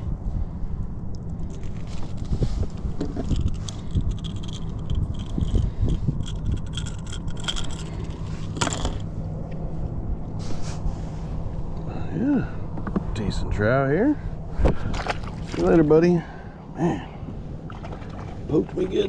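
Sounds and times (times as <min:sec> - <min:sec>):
metal hooks clicking and rattling: 0:03.2 - 0:09.0.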